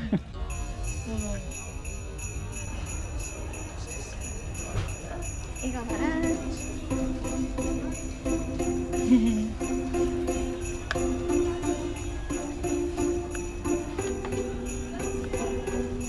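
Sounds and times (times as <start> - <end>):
sleigh bells shaken: 0.4 - 16.0
pitched melody: 4.5 - 16.0.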